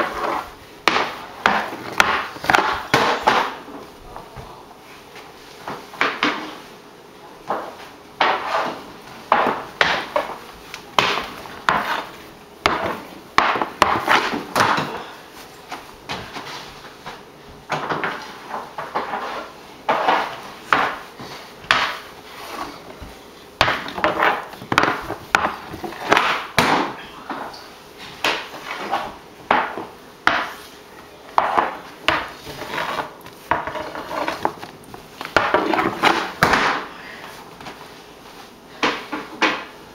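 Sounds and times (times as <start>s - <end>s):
hockey stick knocking on floor: 0.0s - 3.6s, 7.5s - 10.4s, 11.0s - 15.0s, 17.0s - 21.0s, 21.6s - 22.0s, 23.0s - 27.5s, 28.2s - 30.6s, 31.4s - 36.9s
stick scraping on floor: 0.0s - 3.8s, 7.5s - 10.4s, 11.0s - 15.0s, 16.1s - 26.5s, 27.3s - 30.8s, 31.4s - 36.8s.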